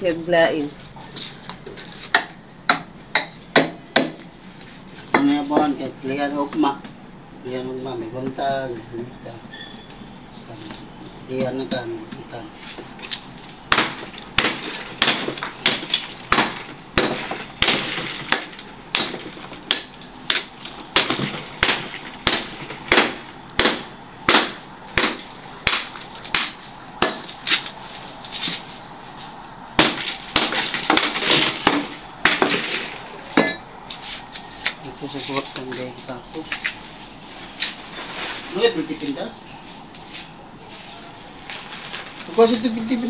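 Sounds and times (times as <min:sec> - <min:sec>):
hammer striking concrete: 0:02.1 - 0:04.2, 0:13.7 - 0:27.6, 0:29.8 - 0:33.6
concrete crumbling: 0:12.8 - 0:28.7, 0:29.8 - 0:33.6.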